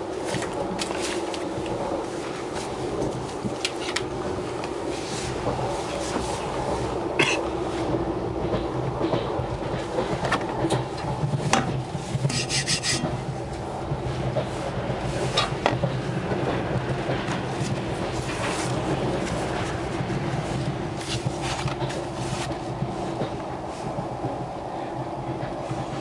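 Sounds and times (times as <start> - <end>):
short scraping rasp: 12.3 - 13.1.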